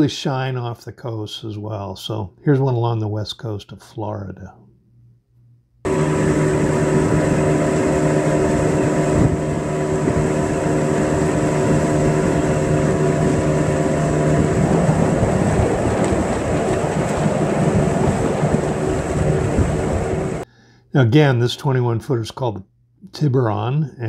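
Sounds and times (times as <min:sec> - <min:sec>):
motorboat engine humming: 0:05.8 - 0:20.4
water rushing past hull: 0:05.9 - 0:20.4
wind: 0:05.9 - 0:20.4.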